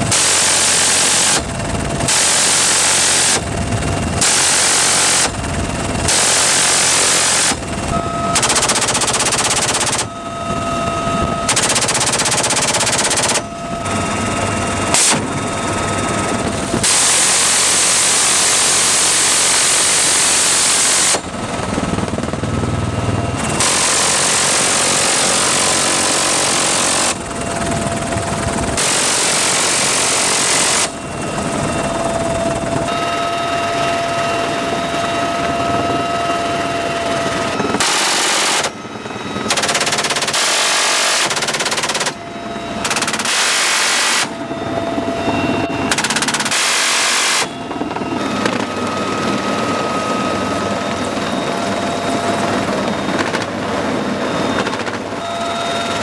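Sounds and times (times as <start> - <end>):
helicopter engine and rotor: 0.0 - 56.0
machine gun bursts: 0.1 - 3.5, 4.2 - 5.4, 6.0 - 7.8, 8.4 - 10.1, 11.5 - 13.5, 37.8 - 38.8, 39.4 - 42.2, 42.8 - 44.3, 45.9 - 47.5.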